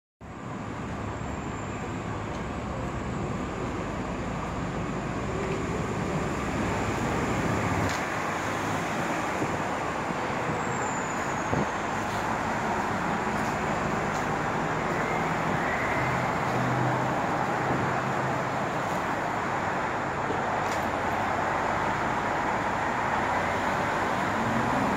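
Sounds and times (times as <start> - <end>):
bus engine rumble: 0.2 - 24.9.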